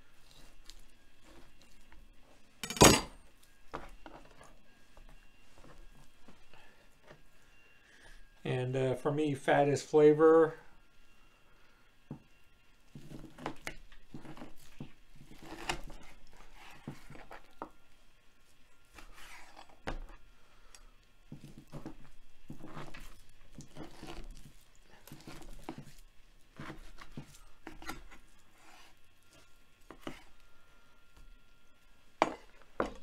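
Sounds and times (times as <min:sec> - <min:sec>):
knife slicing through meat: 0:22.5 - 0:24.4.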